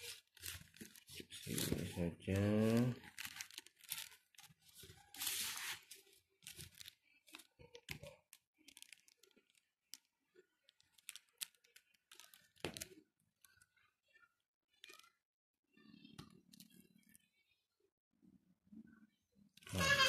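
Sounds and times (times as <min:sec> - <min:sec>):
plastic packaging crinkling: 0:00.0 - 0:13.6.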